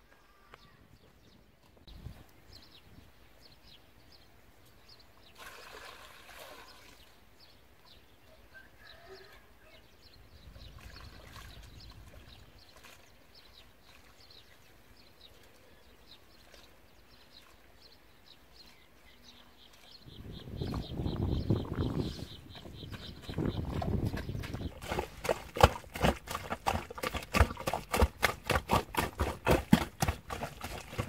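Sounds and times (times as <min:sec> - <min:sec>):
scraping of dry dirt: 0:21.8 - 0:31.0.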